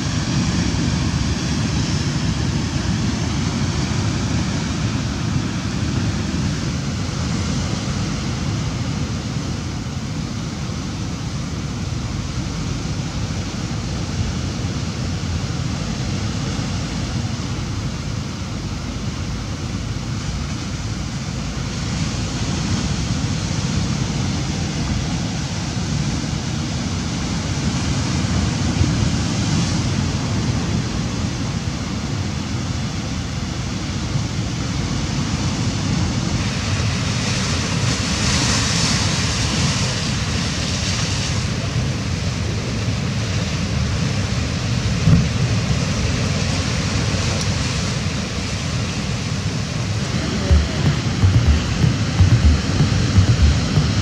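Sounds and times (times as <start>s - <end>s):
ocean surf breaking over rocks: 0.0s - 54.0s.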